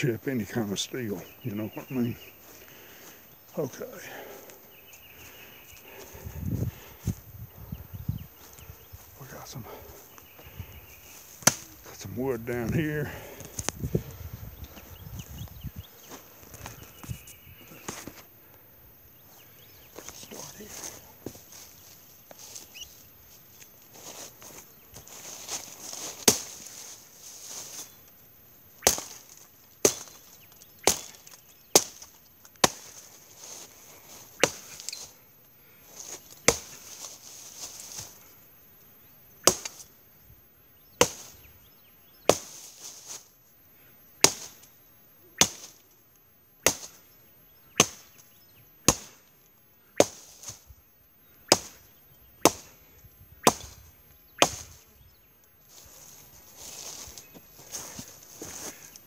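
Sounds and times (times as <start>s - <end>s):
machete chopping into wood: 11.4s - 11.7s, 26.2s - 26.6s, 28.8s - 29.2s, 29.8s - 30.2s, 30.8s - 32.0s, 32.6s - 33.0s, 34.4s - 34.8s, 36.5s - 36.8s, 39.4s - 39.8s, 41.0s - 41.3s, 42.3s - 42.6s, 44.2s - 44.6s, 45.4s - 45.7s, 46.6s - 47.0s, 47.8s - 48.0s, 48.9s - 49.2s, 50.0s - 50.6s, 51.5s - 51.8s, 52.4s - 52.7s, 53.4s - 53.7s, 54.4s - 54.7s.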